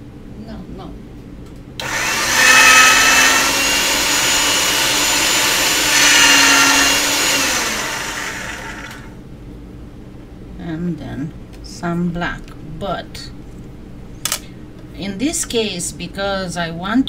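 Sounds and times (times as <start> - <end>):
small electric motor humming: 1.8 - 9.2.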